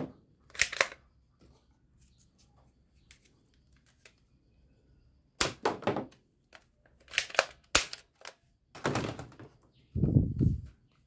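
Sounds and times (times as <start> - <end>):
plastic toy gun clacks: 0.5 - 1.0, 6.5 - 8.5.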